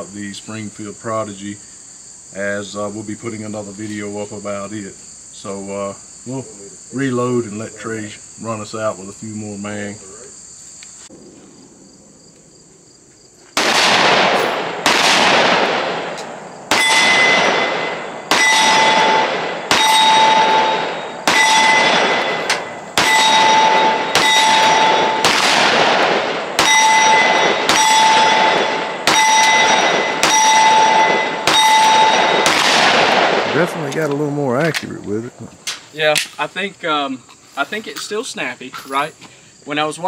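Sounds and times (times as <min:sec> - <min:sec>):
pistol shots: 0:13.6 - 0:34.2
steel targets ringing: 0:16.7 - 0:33.6.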